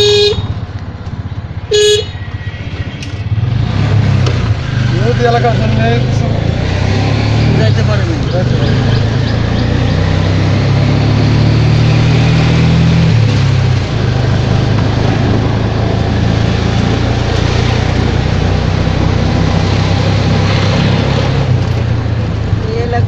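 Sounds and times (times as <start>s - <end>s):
auto-rickshaw engine running: 0.0s - 23.0s
road noise: 0.0s - 23.0s
wind noise: 6.3s - 23.0s.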